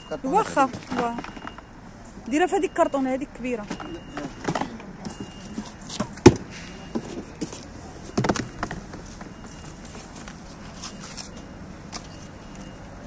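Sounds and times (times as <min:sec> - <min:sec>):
crates knocking and thumping: 0:03.6 - 0:10.4.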